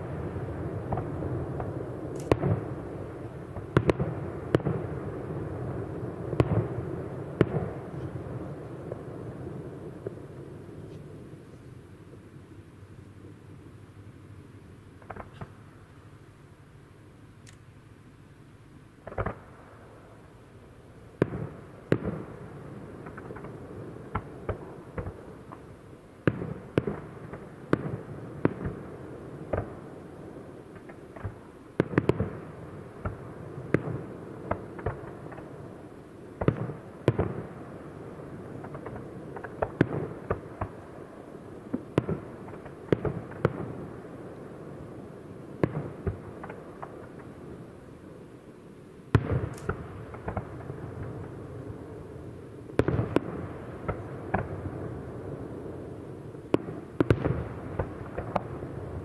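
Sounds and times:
firework shells bursting: 49.2 - 50.5.

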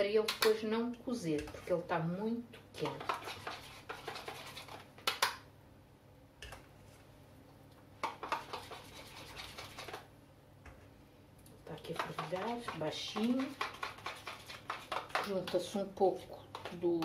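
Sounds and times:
spoon scraping a cooking pot: 11.8 - 15.7.

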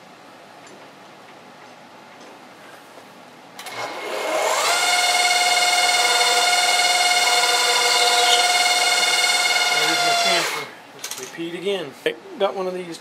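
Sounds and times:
mill motor whine: 3.6 - 10.8
drill bit scratching metal: 4.9 - 10.7.

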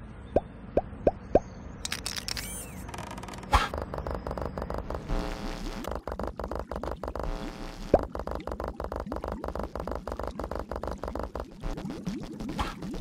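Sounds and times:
cartoon pops: 7.8 - 13.0.

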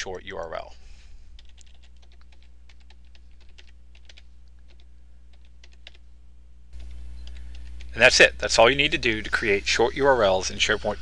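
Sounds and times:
low electrical hum: 0.0 - 11.0
computer keyboard typing: 1.4 - 6.0, 6.8 - 8.0.

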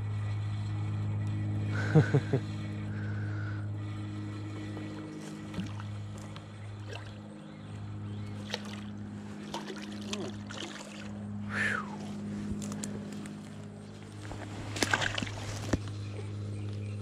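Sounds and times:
low hum: 0.0 - 17.0
fish splashing in water: 4.9 - 7.4, 8.3 - 11.3, 14.7 - 15.8.

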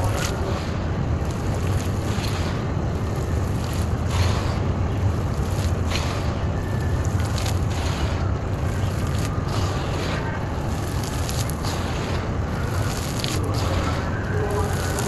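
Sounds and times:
clay lumps crumbling and crunching: 0.0 - 15.0
steady low rumble: 0.0 - 15.0
grit falling onto gravel: 10.6 - 13.9.

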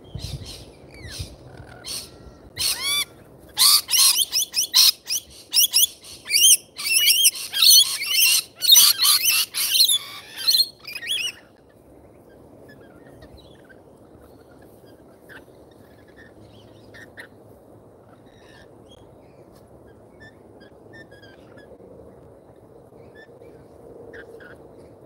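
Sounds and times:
lorikeet screeching calls: 0.2 - 11.5, 20.2 - 21.7.

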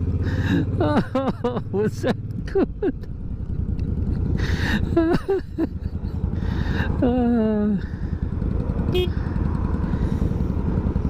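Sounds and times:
motorcycle engine rumble: 0.0 - 11.0
person laughing: 0.2 - 3.2, 4.0 - 8.0
wind while riding: 2.2 - 11.0.

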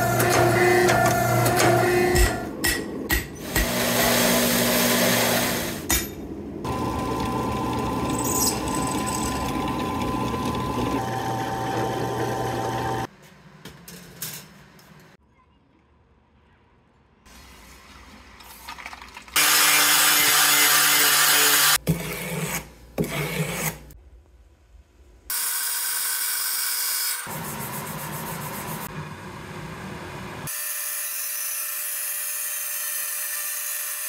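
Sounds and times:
harsh machine noise: 0.0 - 2.5, 3.4 - 5.8, 6.6 - 13.1
machine whine: 6.6 - 13.1.

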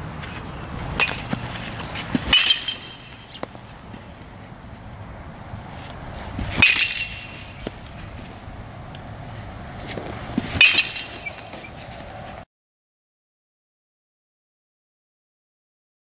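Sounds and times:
metal bat hitting ball: 0.9 - 4.1, 6.4 - 8.0, 10.4 - 11.8.

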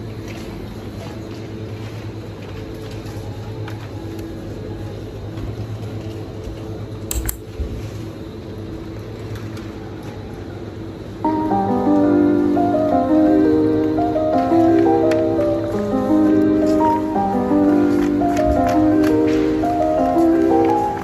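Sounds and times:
refrigerator and ventilation hum: 0.0 - 21.0.

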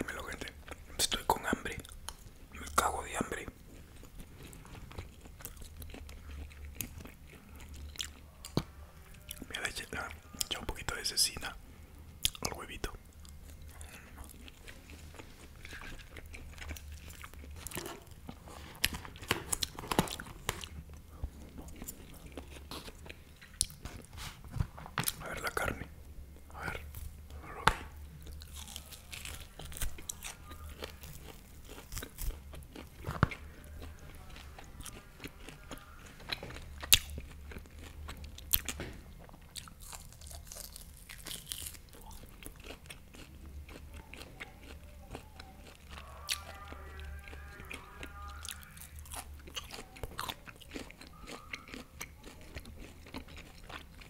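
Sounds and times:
low steady hum: 0.0 - 54.0
chewing and biting meat: 3.7 - 9.5, 13.2 - 24.1, 27.6 - 54.0.

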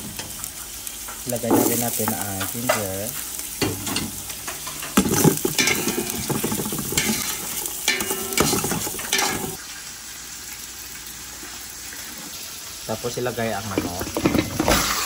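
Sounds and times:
food sizzling in hot oil: 0.0 - 15.0
metal ladle scraping pot: 3.8 - 9.6.

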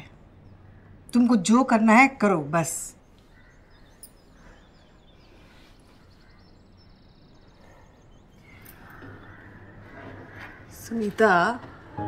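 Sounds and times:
faint bird chirps: 2.9 - 12.0.

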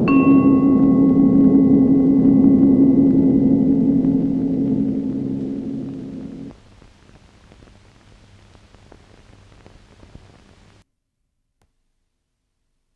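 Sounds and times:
low hum: 0.0 - 6.6
film soundtrack hiss and crackles: 0.0 - 10.9.

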